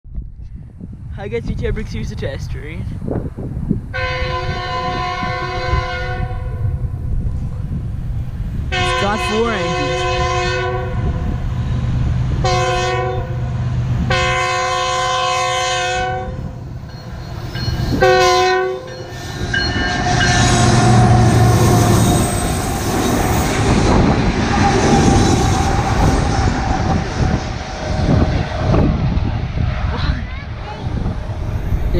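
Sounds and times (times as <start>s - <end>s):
locomotives rumbling past: 1.3s - 31.9s
locomotive horn blasts: 4.0s - 6.7s, 8.7s - 11.3s, 12.4s - 13.4s, 14.1s - 16.5s, 17.9s - 22.3s.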